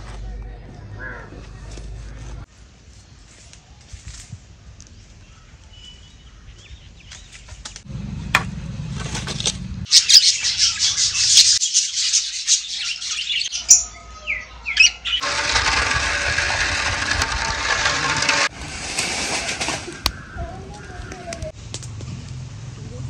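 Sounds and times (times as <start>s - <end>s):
birds chirping and chattering: 9.8s - 15.4s, 19.8s - 21.6s
whistled sweeping bird calls: 9.9s - 15.2s.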